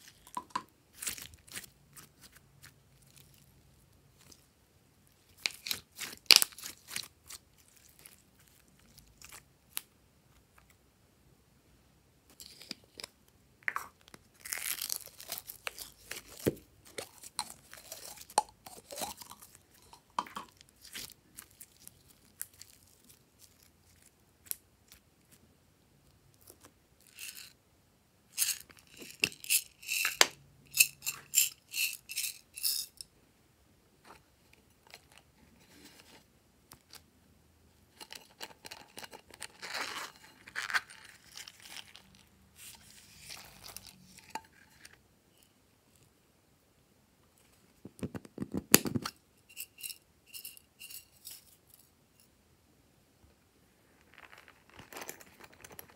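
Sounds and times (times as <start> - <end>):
beads rattling: 27.1 - 27.6, 28.3 - 33.0.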